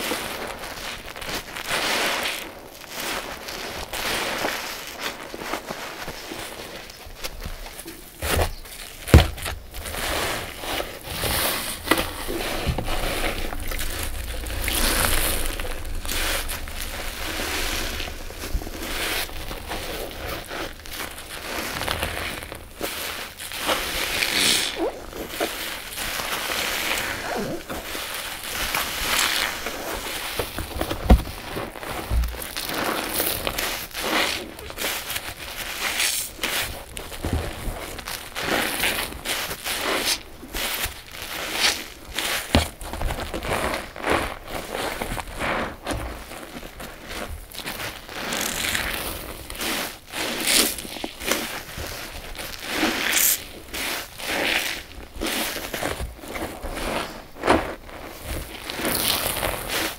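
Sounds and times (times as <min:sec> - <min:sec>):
wet sponges squelching: 0:00.0 - 0:59.9
sponges squeezed by hand: 0:18.8 - 0:30.4.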